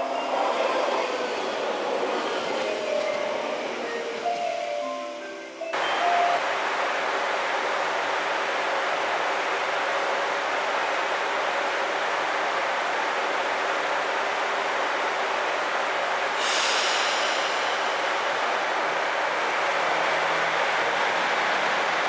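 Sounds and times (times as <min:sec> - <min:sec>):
diesel railcar idling: 0:00.0 - 0:22.0
short high-pitched hiss: 0:16.4 - 0:18.5.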